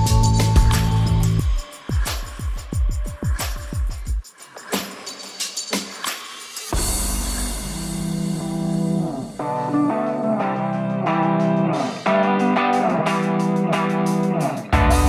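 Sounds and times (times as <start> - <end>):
guitar background music: 0.0 - 2.1, 7.6 - 15.0.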